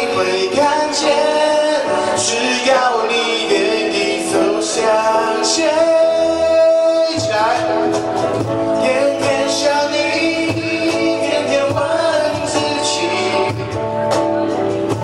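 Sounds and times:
cajon drum: 0:00.0 - 0:15.0
electric guitar: 0:00.0 - 0:15.0
man singing pop ballad: 0:00.0 - 0:15.0.

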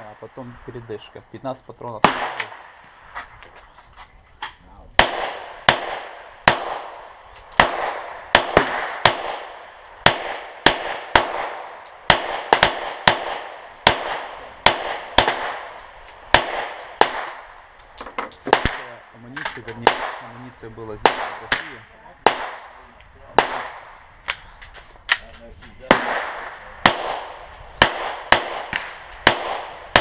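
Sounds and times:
pistol shots with echo: 0:02.0 - 0:02.8, 0:05.0 - 0:17.7, 0:18.4 - 0:20.4, 0:21.0 - 0:24.4, 0:25.8 - 0:30.0.

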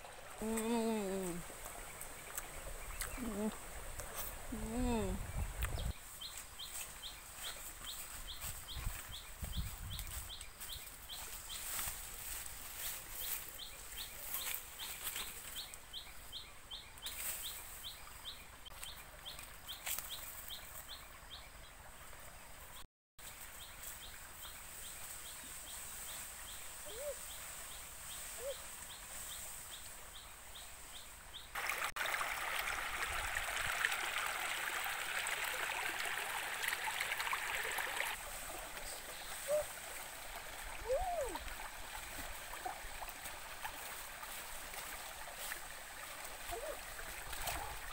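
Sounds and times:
rocky stream rushing: 0:31.6 - 0:47.9.

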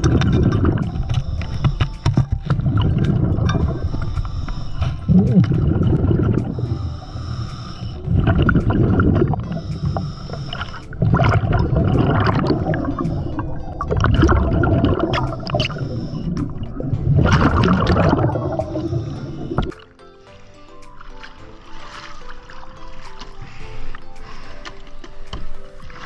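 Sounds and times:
regulator exhaust bubbling: 0:02.4 - 0:04.3, 0:05.0 - 0:07.1, 0:08.0 - 0:19.7
regulator inhale hiss: 0:03.7 - 0:05.1, 0:06.4 - 0:08.3, 0:09.3 - 0:11.1, 0:15.3 - 0:16.7, 0:18.6 - 0:20.7.

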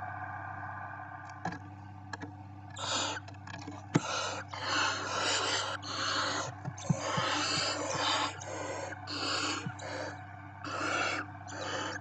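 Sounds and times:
owl chicks hissing: 0:02.8 - 0:03.2, 0:04.0 - 0:12.0.

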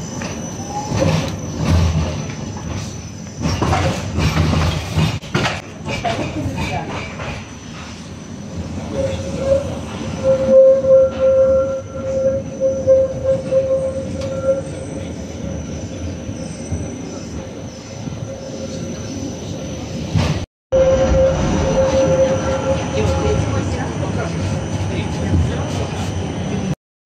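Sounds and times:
tram rumbling on rails: 0:00.0 - 0:26.8
wheels squealing on track: 0:08.8 - 0:17.3.

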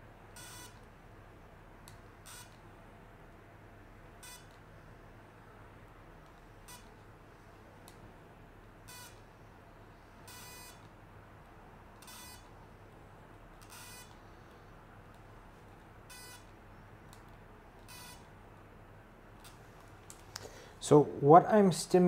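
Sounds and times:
short electronic beeps: 0:00.4 - 0:00.8, 0:04.2 - 0:04.5.

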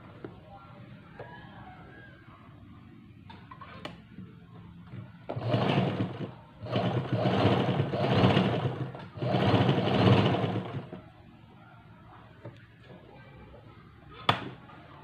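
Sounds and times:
sewing machine running: 0:05.3 - 0:11.0.

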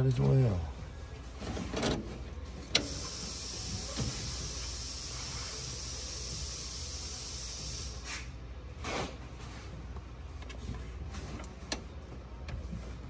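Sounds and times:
steady hiss: 0:02.8 - 0:08.4.

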